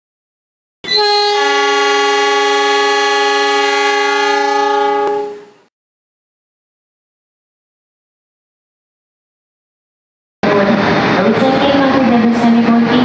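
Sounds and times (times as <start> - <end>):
train air horn chord: 0.9 - 5.7.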